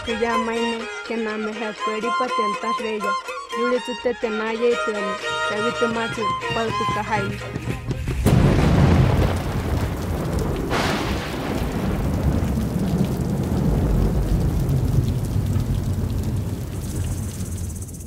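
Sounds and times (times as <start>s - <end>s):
deep rumbling noise: 7.3s - 18.0s.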